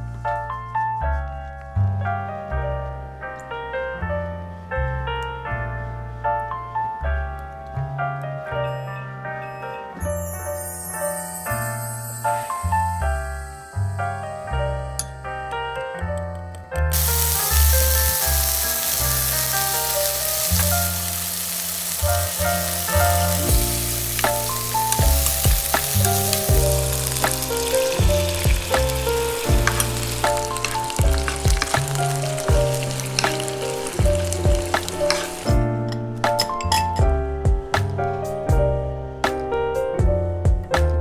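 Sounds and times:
background music: 0:00.0 - 0:41.0
meat sizzling in a frying pan: 0:16.9 - 0:35.6.

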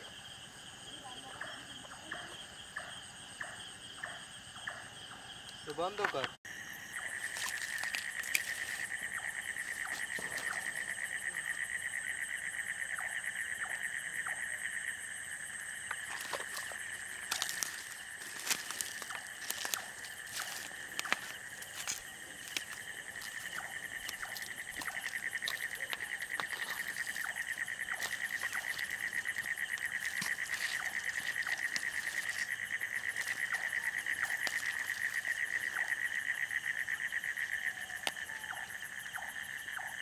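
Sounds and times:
night insects trilling: 0:00.0 - 0:40.0
rustles in undergrowth: 0:07.0 - 0:11.1, 0:15.9 - 0:38.6.

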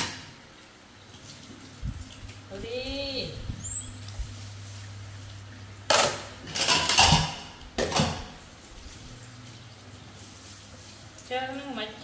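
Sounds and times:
dishes clattering in a metal sink: 0:00.0 - 0:00.4, 0:05.9 - 0:08.4.

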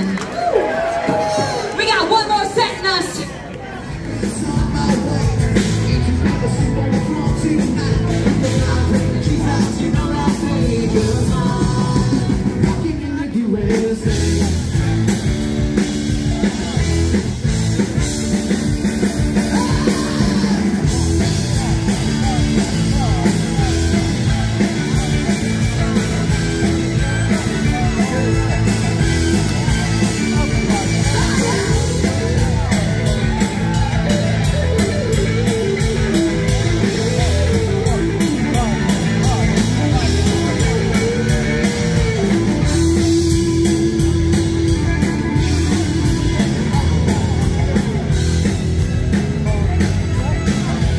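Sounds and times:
live rock band playing: 0:00.0 - 0:50.9
person singing: 0:04.1 - 0:14.9
steady drum beat: 0:04.2 - 0:50.9.

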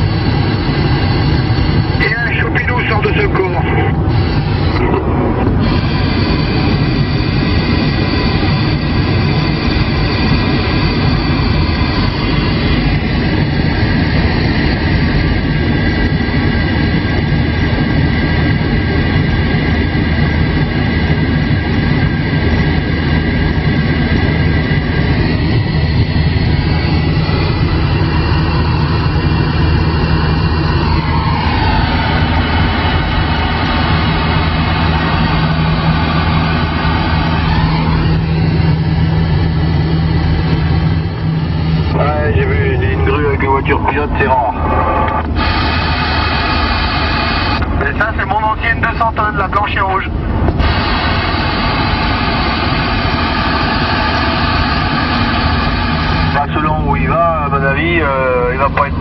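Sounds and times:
radio static hiss: 0:02.0 - 0:07.0, 0:41.9 - 0:59.0
whistling radio tones: 0:02.0 - 0:08.5, 0:41.9 - 0:50.1.

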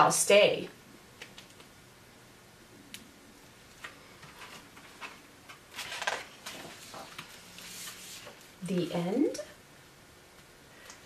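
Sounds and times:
book pages turning: 0:03.7 - 0:08.5.

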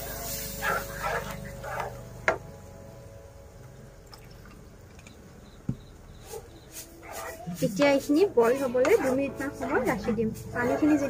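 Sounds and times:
milk pouring and splashing: 0:04.0 - 0:05.2.

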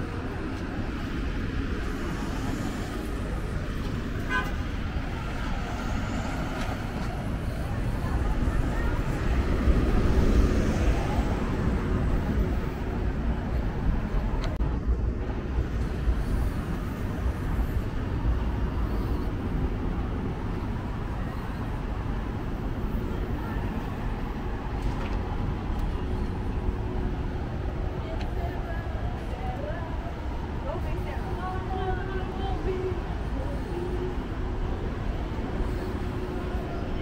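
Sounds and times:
road traffic rumble: 0:00.0 - 0:37.0.

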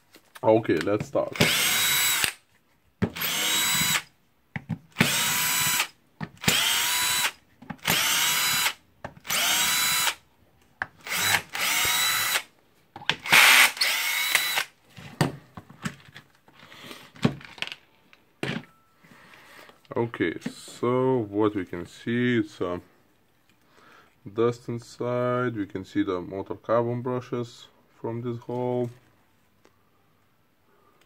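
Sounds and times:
drill-driver winding up: 0:01.3 - 0:02.4, 0:03.1 - 0:04.1, 0:04.9 - 0:10.2, 0:11.0 - 0:12.5, 0:13.1 - 0:14.8.

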